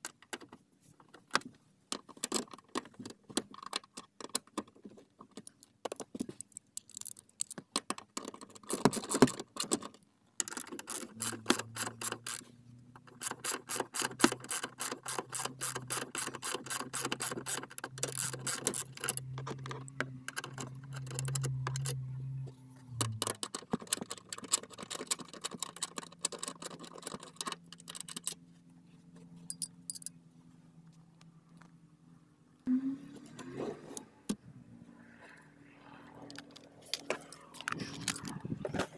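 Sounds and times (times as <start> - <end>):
ratchet wrench clicking: 10.5 - 12.4, 13.1 - 19.4, 29.5 - 30.1.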